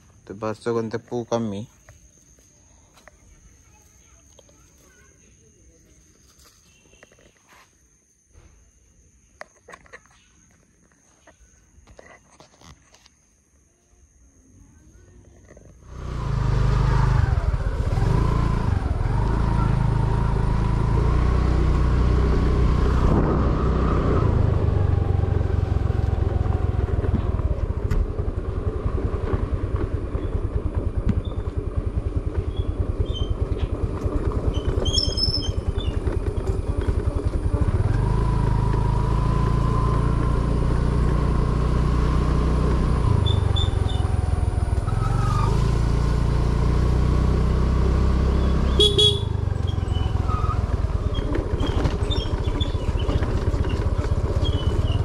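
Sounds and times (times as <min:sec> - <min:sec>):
vehicle engine running with whine: 0:15.7 - 0:55.0.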